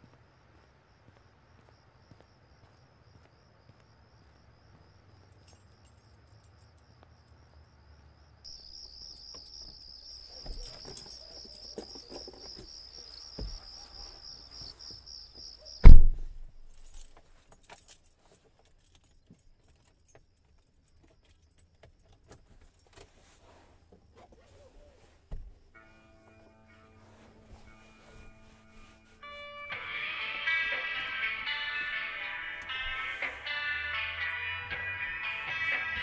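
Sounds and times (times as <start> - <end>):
crickets chirping: 0.0 - 36.0
car door shutting: 15.8 - 16.4.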